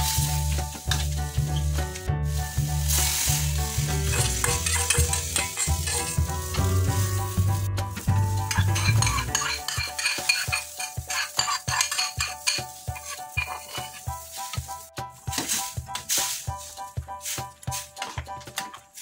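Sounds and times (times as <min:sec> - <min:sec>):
low sizzle: 0:00.0 - 0:17.6
metal spatula scraping a wok: 0:02.4 - 0:14.7
spatula knocking against wok: 0:04.1 - 0:06.6, 0:08.4 - 0:13.9.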